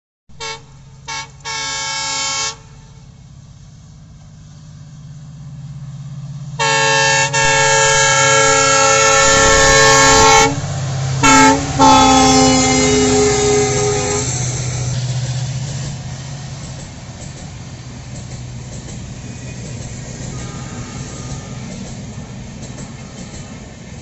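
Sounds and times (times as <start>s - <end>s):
locomotive horn: 0.4s - 3.1s, 6.6s - 14.7s, 20.3s - 23.6s
locomotive engine rumble: 0.4s - 24.0s.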